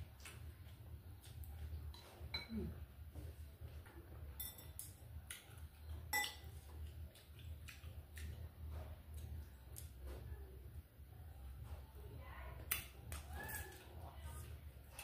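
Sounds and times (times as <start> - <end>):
steady low hum: 0.0 - 15.0
chopsticks clinking on bowls: 4.4 - 5.5, 6.1 - 6.5.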